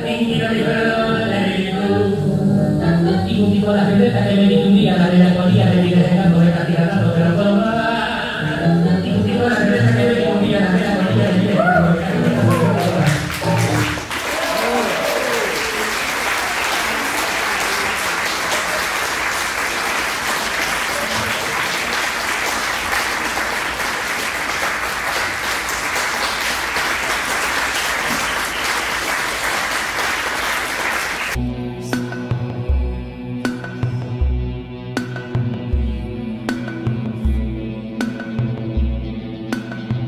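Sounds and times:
music: 0.0s - 14.2s, 31.4s - 40.0s
audience applauding: 10.7s - 31.4s.

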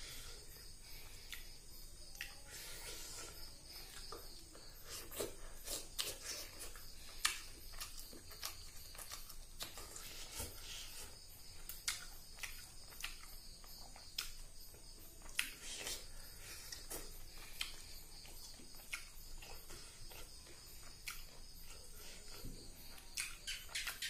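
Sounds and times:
chewing wet smacks: 4.0s - 10.6s, 11.5s - 16.1s, 16.7s - 24.0s.

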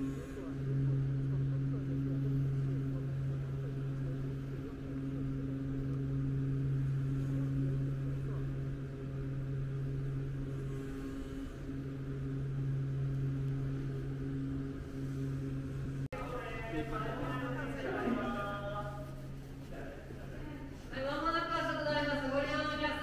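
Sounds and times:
low machine hum: 0.0s - 23.0s
low rumble: 0.0s - 23.0s.

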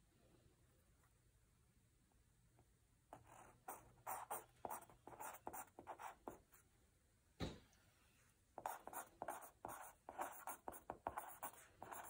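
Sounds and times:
pen scratching on paper: 3.1s - 6.4s, 8.6s - 12.0s.

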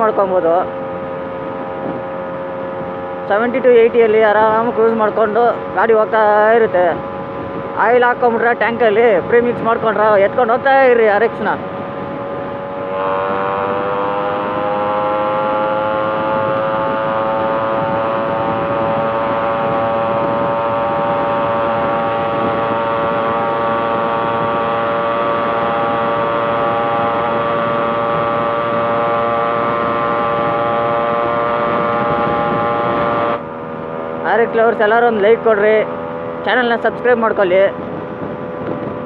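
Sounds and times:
motorcycle engine whine: 0.0s - 39.0s
wind and road rush: 0.0s - 39.0s.

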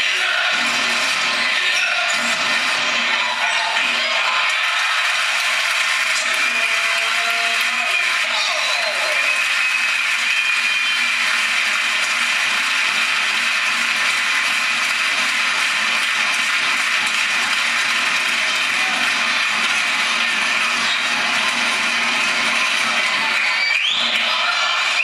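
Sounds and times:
crowd din in basketball hall: 0.0s - 25.0s.

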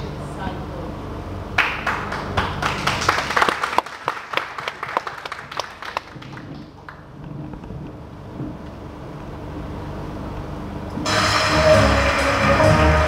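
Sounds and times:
audience applauding: 1.6s - 7.1s.

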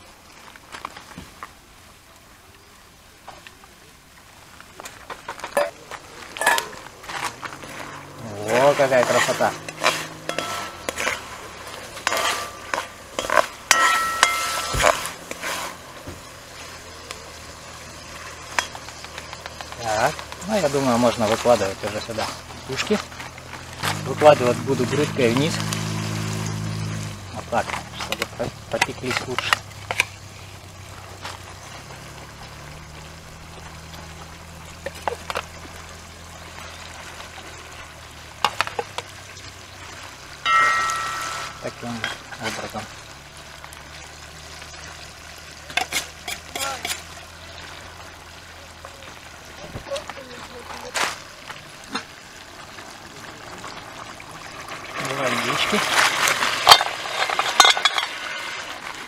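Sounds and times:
vegetables sizzling: 4.2s - 59.0s
metal spoon scraping pot: 6.4s - 15.8s, 40.5s - 42.3s, 45.7s - 47.1s
metal spoon clinking on pot: 9.6s - 11.2s, 12.0s - 14.7s, 40.5s - 42.2s.

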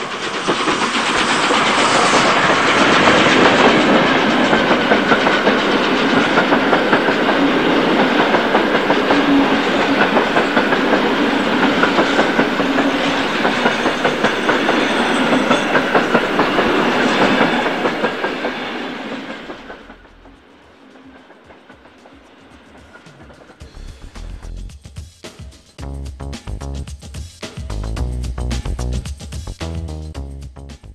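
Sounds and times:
model train wheels clickety-clack: 0.0s - 23.7s.

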